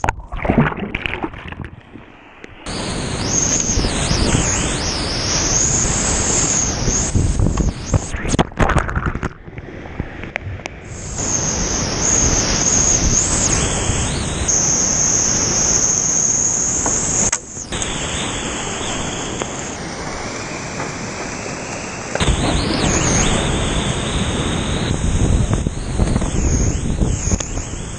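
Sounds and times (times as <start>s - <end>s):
thin high whine: 1.6s - 9.2s, 10.8s - 27.9s
rushing whitewater: 17.7s - 26.8s.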